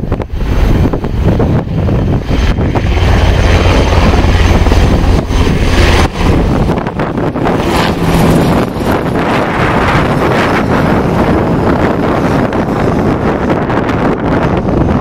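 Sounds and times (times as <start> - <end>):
aircraft engine rumble: 0.0 - 15.0
wind buffeting microphone: 0.0 - 15.0.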